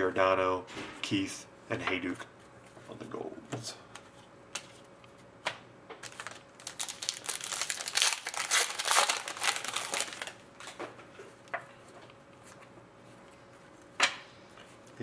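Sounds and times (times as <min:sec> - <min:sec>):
foil wrapper crinkling and tearing: 0:06.0 - 0:10.8.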